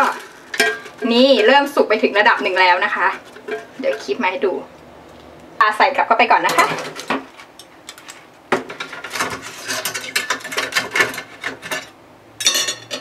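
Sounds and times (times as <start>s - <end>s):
utensils scraping metal basket: 0.0s - 4.4s, 7.9s - 13.0s.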